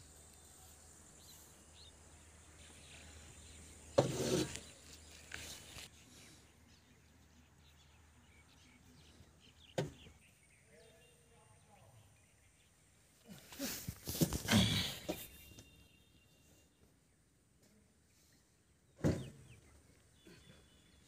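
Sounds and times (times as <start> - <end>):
faint bird chirps: 4.6 - 21.0.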